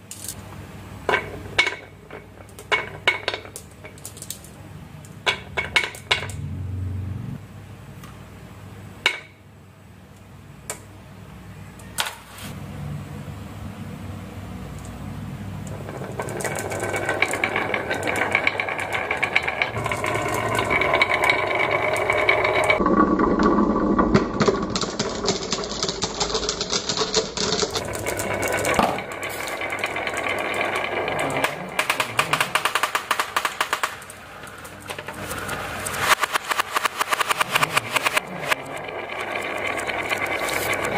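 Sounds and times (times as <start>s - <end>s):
glass marbles rattling on wooden track: 1.1s - 4.6s, 15.6s - 40.9s.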